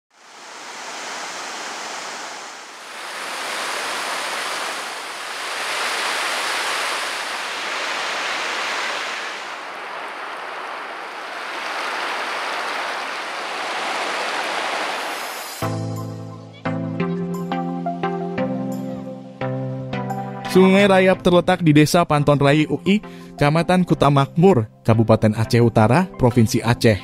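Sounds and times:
water rushing over rocks: 0.1s - 15.6s.

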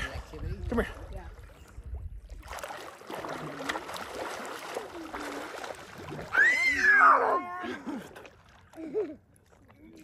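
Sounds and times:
water splashing: 0.0s - 10.0s
child squealing: 6.3s - 7.7s.

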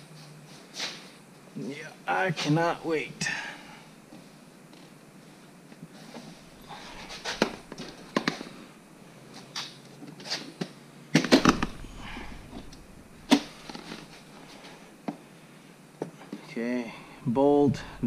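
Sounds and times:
heavy thumps: 6.5s - 8.6s, 11.3s - 14.6s
seat knocking and bumping: 6.6s - 8.2s, 11.3s - 14.2s.

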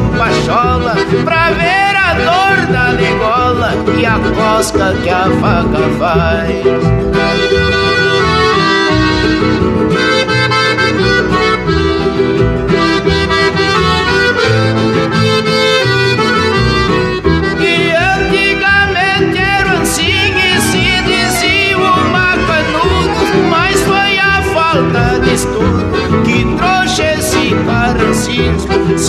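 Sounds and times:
accordion chords: 0.0s - 29.0s
guitar accompaniment: 0.0s - 29.0s
wavering high melody: 6.3s - 27.6s.

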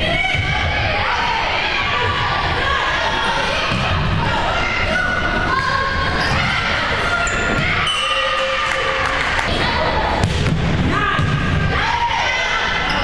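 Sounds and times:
people calling out and cheering: 0.0s - 10.2s.

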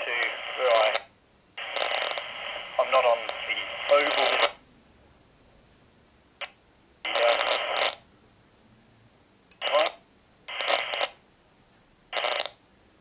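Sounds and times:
voice over walkie-talkie speaker: 0.0s - 1.9s, 2.7s - 4.6s, 7.1s - 8.0s, 9.6s - 11.1s.

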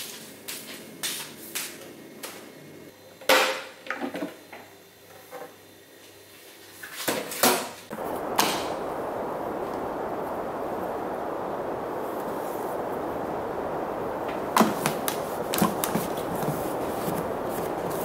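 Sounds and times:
steady rushing noise: 7.9s - 18.0s.

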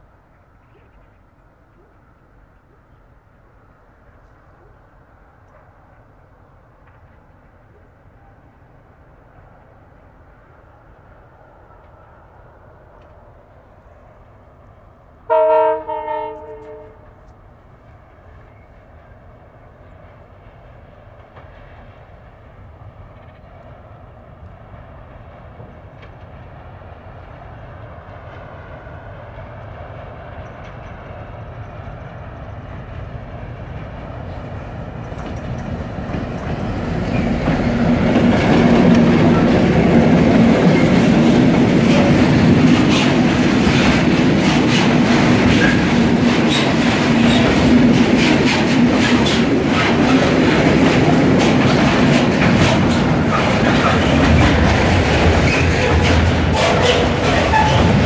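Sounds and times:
diesel locomotive engine drone: 0.0s - 58.0s
train horn blasts: 15.3s - 17.2s
wagons clattering over rail joints: 30.4s - 58.0s.

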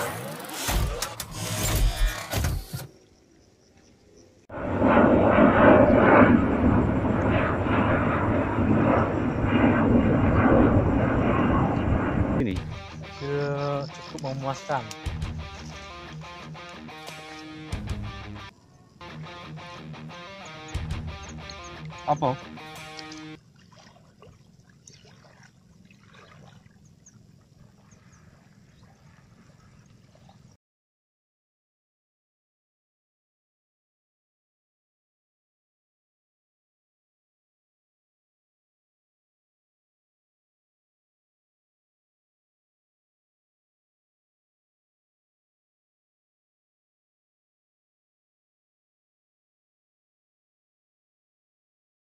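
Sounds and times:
jet airliner flying overhead: 4.4s - 12.6s
low rumble: 4.5s - 13.9s
bird chirps: 20.2s - 23.4s.

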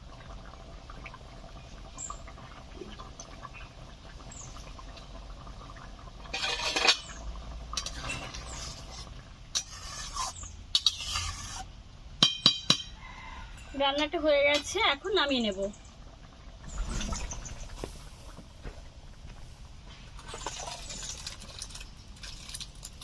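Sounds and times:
low steady background noise: 0.0s - 23.0s
spatula scraping a pan: 6.3s - 7.2s, 7.8s - 11.7s.

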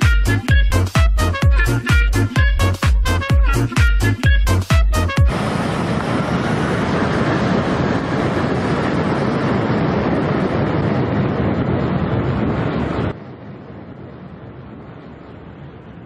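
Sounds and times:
wind buffeting microphone: 0.0s - 16.0s
jet engine blast: 5.1s - 16.0s.

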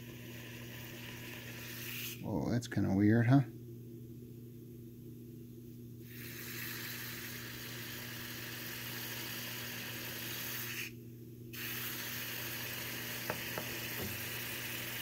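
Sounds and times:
liquid nitrogen boiling hiss: 0.0s - 2.6s, 6.0s - 15.0s.

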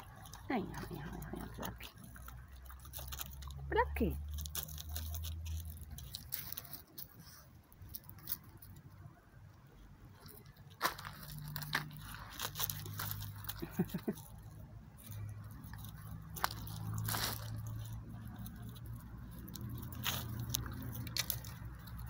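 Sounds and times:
dog chewing bones: 0.0s - 8.8s, 14.4s - 22.0s.

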